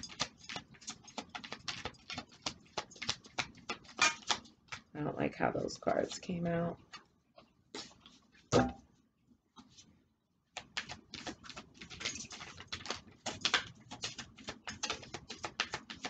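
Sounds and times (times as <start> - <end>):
cards being shuffled: 0.0 - 4.9, 10.5 - 16.0.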